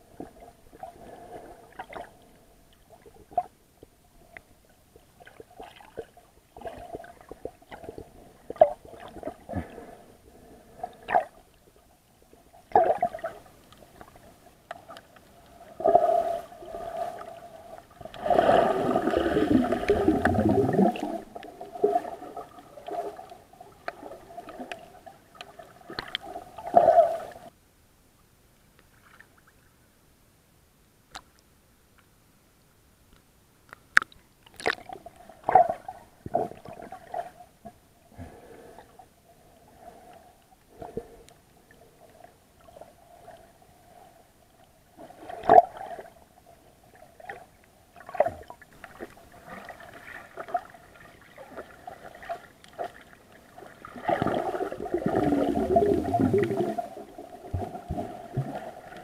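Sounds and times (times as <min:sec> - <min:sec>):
faint steady hum: 0:00.0 - 0:59.0
rush of water: 0:53.9 - 0:59.0.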